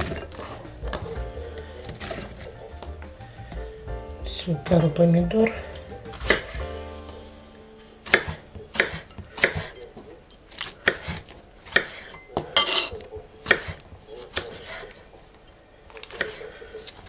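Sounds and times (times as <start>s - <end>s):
knife cutting on wooden board: 0.0s - 2.6s, 5.7s - 6.7s, 8.0s - 9.8s, 10.6s - 12.2s.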